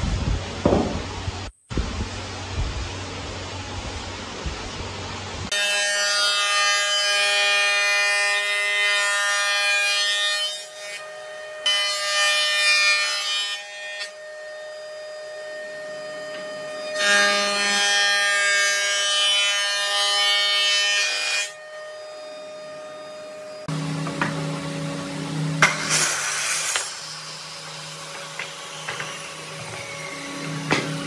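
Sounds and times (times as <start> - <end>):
machine's steady whine: 14.1 - 17.0, 21.5 - 31.0.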